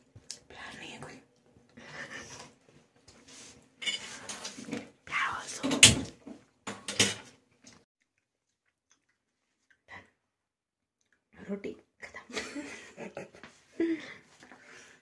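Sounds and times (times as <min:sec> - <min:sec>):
person whispering: 0:00.4 - 0:01.3, 0:05.0 - 0:05.8.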